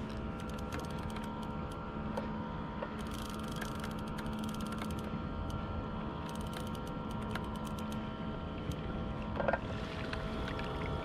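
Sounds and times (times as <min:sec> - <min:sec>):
steady low hum: 0:00.0 - 0:11.0
fishing reel clicking: 0:00.4 - 0:01.8, 0:03.0 - 0:05.1, 0:06.2 - 0:08.0.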